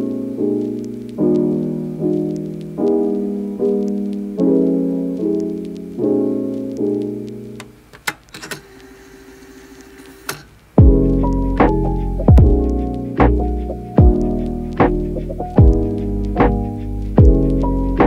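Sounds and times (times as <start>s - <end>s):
piano chords: 0.0s - 7.9s, 10.8s - 18.0s
sharp clicks: 7.6s - 8.9s.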